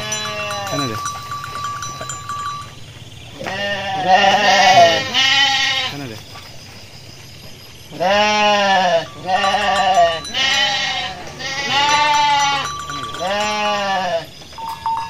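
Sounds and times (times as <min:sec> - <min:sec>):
sheep bleating: 0:00.0 - 0:01.1, 0:03.4 - 0:06.0, 0:07.9 - 0:14.3.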